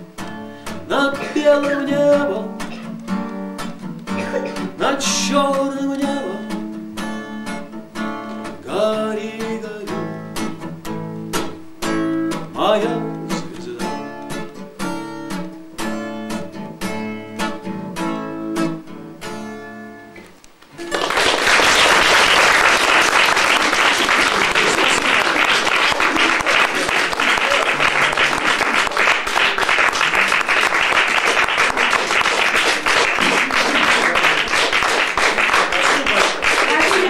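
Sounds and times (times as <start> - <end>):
acoustic guitar strumming: 0.0 - 21.1, 31.7 - 37.0
audience applause: 20.8 - 37.0.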